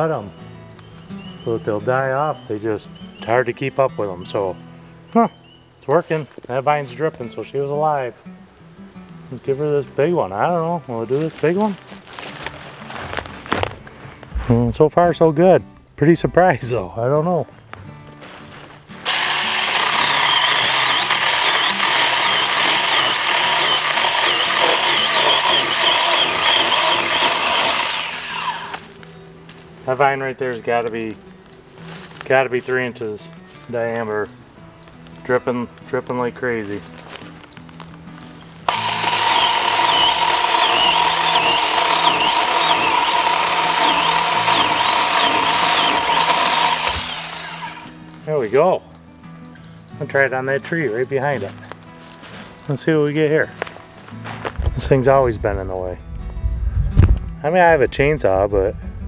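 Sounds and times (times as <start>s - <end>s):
electric chainsaw whining: 19.0s - 29.0s, 38.7s - 47.9s.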